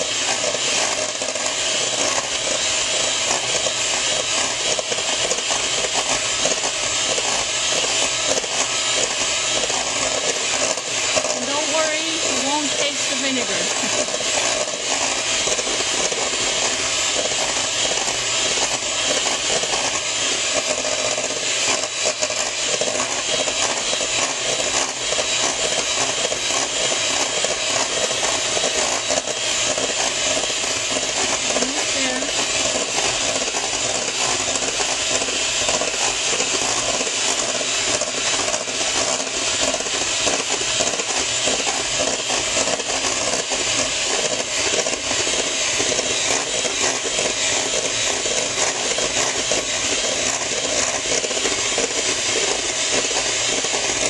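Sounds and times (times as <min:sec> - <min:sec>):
electric hand mixer whipping: 0:00.0 - 0:54.0.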